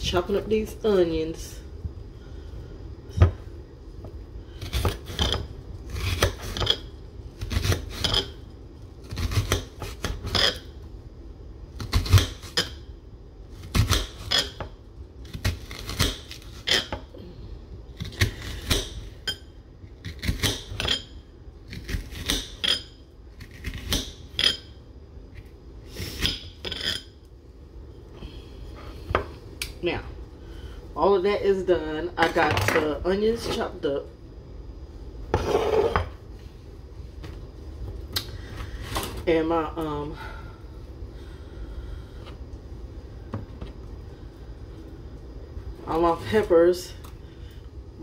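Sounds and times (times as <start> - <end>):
knife slicing onion: 4.5 - 8.4, 9.0 - 10.7, 11.8 - 12.8, 13.5 - 17.0, 17.9 - 19.2, 20.0 - 21.1, 21.7 - 24.6.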